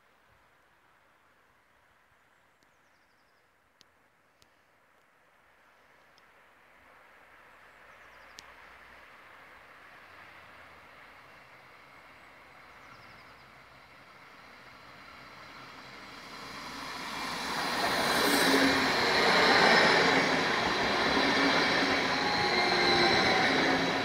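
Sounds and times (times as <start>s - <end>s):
train passing: 8.7s - 24.0s
wheels rushing on rail: 9.3s - 24.0s
train whining tones: 13.1s - 24.0s.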